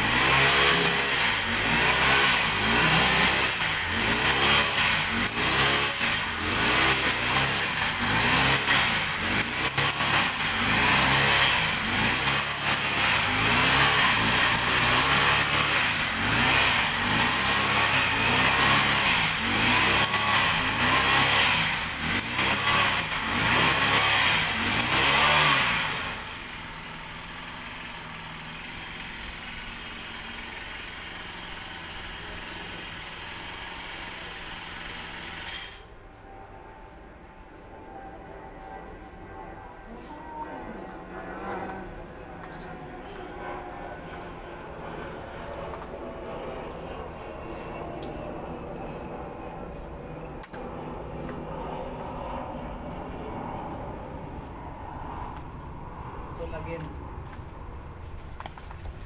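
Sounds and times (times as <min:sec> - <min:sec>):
brush cutter engine running: 0:00.0 - 0:35.9.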